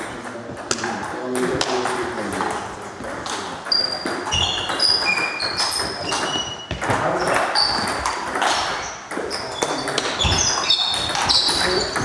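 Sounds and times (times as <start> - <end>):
sports shoes squeaking on floor: 3.0 - 12.0.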